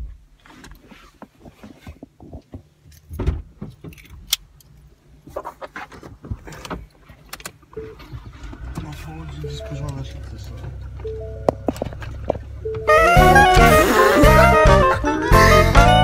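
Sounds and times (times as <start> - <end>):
car engine idling: 7.6 - 15.8.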